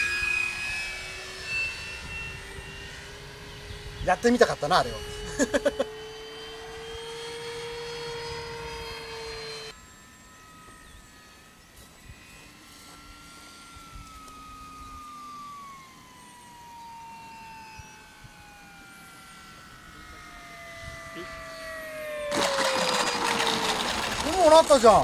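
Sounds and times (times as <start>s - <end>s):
faint hum falling in pitch: 0.0s - 25.0s
model airplane motor humming: 0.0s - 25.0s.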